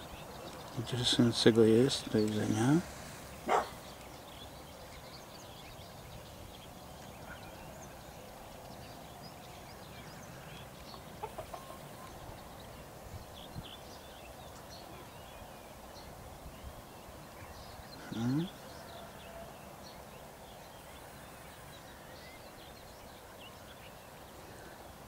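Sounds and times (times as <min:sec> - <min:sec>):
small birds chirping: 0:00.0 - 0:25.0
hens clucking: 0:10.9 - 0:12.1.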